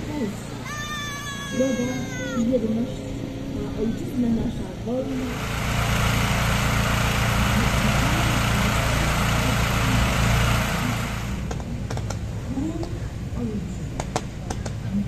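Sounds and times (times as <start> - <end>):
fireworks fountain rushing hiss: 5.2 - 11.6.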